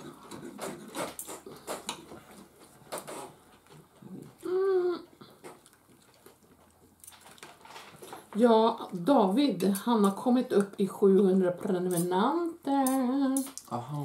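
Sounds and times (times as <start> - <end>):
person humming: 4.1 - 5.2.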